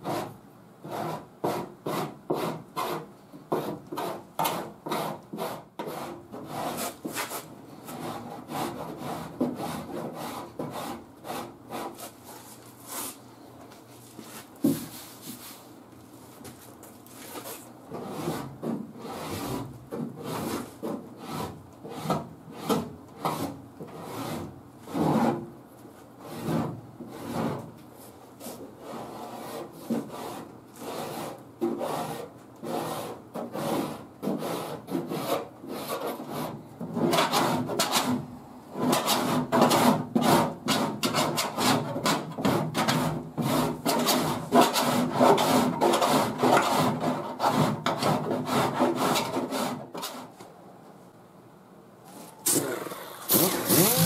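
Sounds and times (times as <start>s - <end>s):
rasp scraping body filler: 0.0s - 13.2s, 38.8s - 50.3s, 53.3s - 54.0s.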